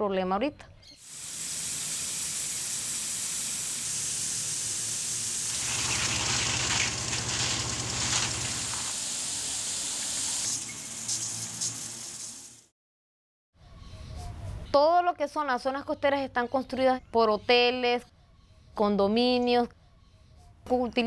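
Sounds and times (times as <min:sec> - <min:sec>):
lawn sprinklers spraying water: 0:01.0 - 0:12.7.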